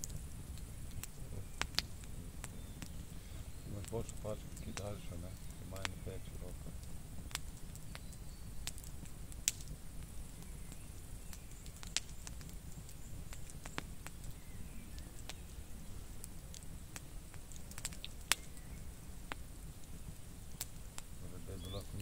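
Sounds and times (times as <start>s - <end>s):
campfire crackling and popping: 0.0s - 22.0s
low steady rumble: 0.0s - 22.0s.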